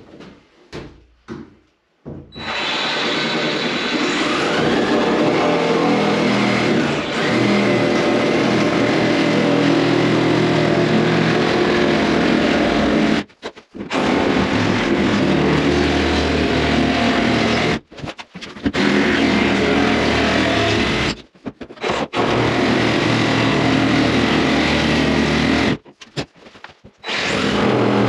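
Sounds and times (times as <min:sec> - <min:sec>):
reciprocating saw cutting wood: 0:02.4 - 0:13.3.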